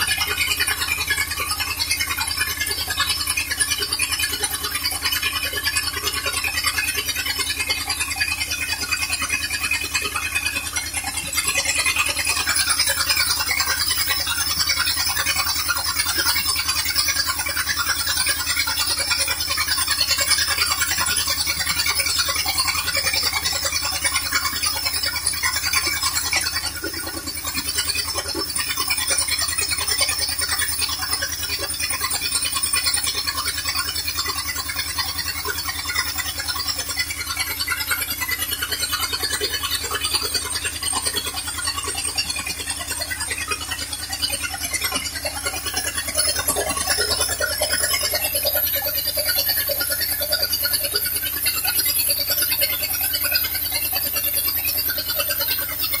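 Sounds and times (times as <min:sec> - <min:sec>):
engine idling: 0:00.0 - 0:56.0.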